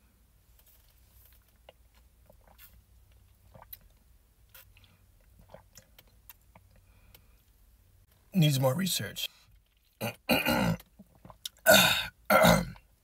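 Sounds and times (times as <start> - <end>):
sipping through a straw: 2.3 - 2.9.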